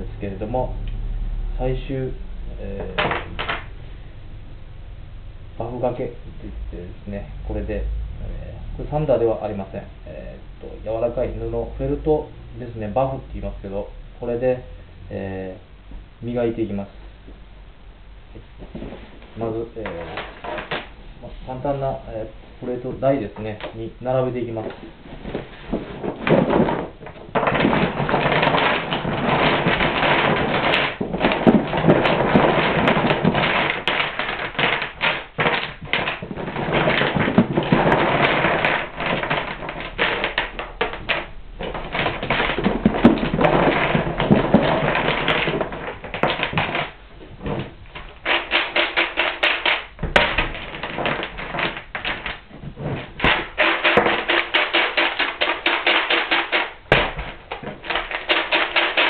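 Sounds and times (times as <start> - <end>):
wooden blocks clattering: 2.8 - 3.7, 19.8 - 20.9, 24.5 - 59.0.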